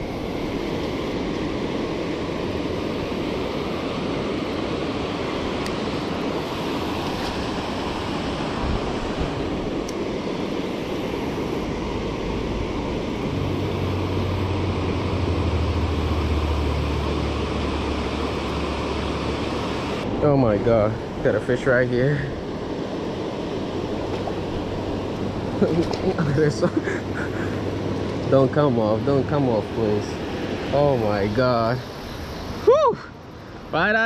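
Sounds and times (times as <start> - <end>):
low steady hum: 9.6 - 32.0.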